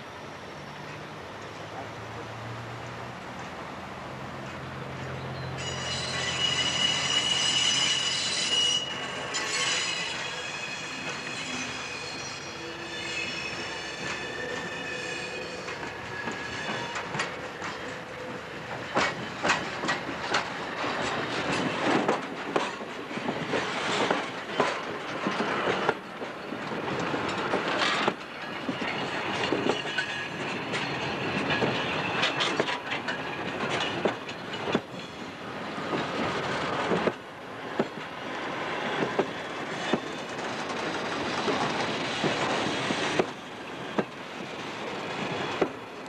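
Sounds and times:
wheel squeal: 5.4s - 19.7s, 27.3s - 35.3s
train wheels clanking over rail joints: 5.6s - 45.9s.

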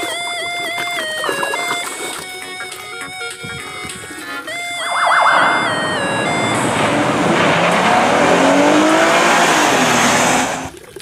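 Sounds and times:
road and tyre noise: 4.8s - 10.8s
car engine revving: 4.9s - 10.7s.

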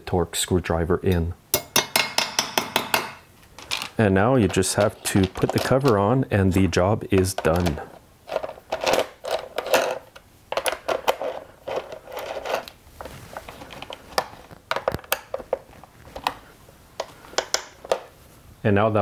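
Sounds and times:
plastic cover clicking and rattling: 13.5s - 16.4s, 17.0s - 18.1s.

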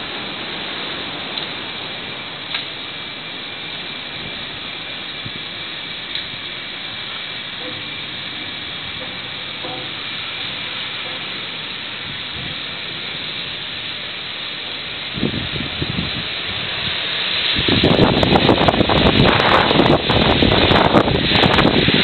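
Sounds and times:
ship noise: 0.0s - 22.0s
gusts buffeting microphone: 14.8s - 22.0s
wind rushing: 15.1s - 22.0s.

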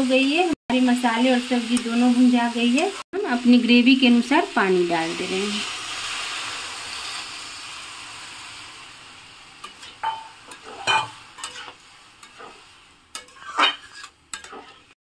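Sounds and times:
water sizzling in hot pan: 0.0s - 15.0s
spatula scraping metal pan: 9.6s - 15.0s.

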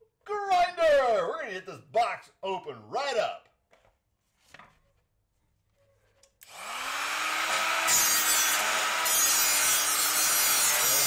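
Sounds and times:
angle grinder motor running: 6.5s - 11.0s.

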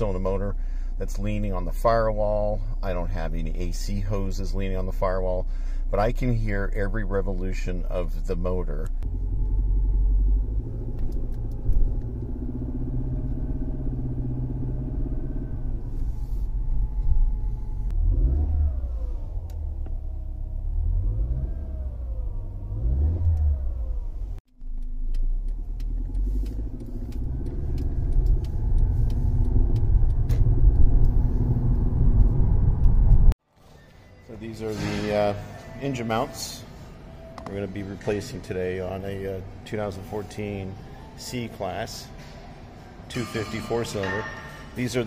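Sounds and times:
car engine droning in cabin: 6.2s - 33.4s.

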